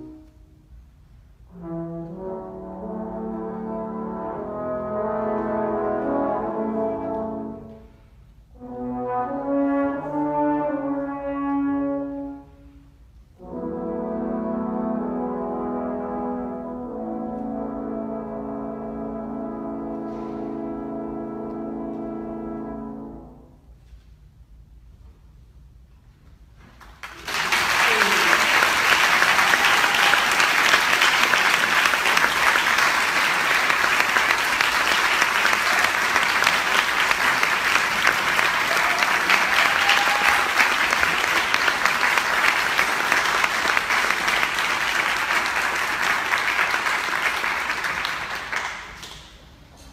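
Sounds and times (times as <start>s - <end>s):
audience applauding: 26.8s - 49.4s.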